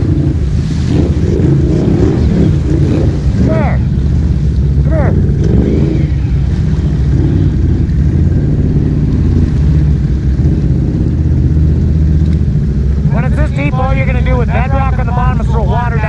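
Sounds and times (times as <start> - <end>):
atv engine running at low revs: 0.0 - 16.0
vehicle wading through water: 0.0 - 16.0.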